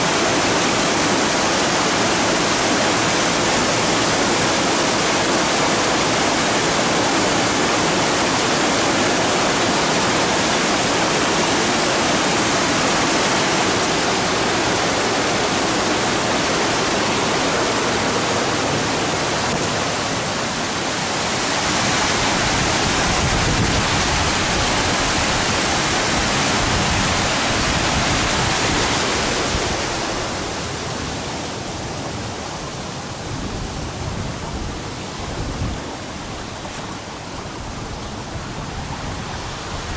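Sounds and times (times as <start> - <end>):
waterfall splashing into pool: 0.0 - 31.3
stream flowing: 0.0 - 39.9.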